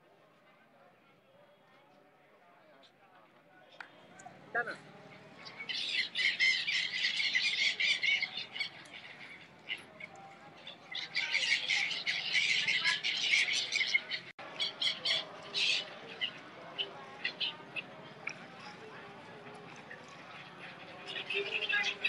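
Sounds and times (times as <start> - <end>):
gulls squawking: 5.5 - 10.0.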